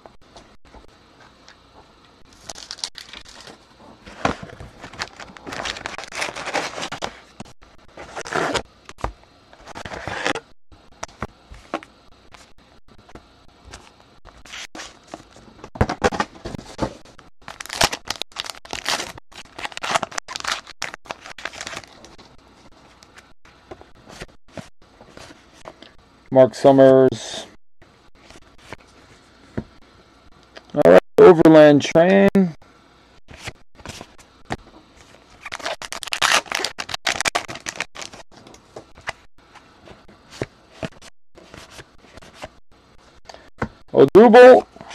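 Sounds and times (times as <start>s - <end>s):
card pack wrappers crinkling and tearing: 2.3s - 8.6s, 17.4s - 22.2s, 35.1s - 39.1s.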